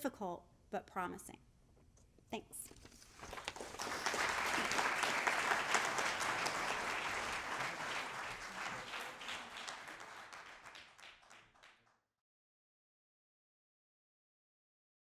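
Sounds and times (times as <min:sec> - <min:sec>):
audience applauding: 0:03.2 - 0:11.9.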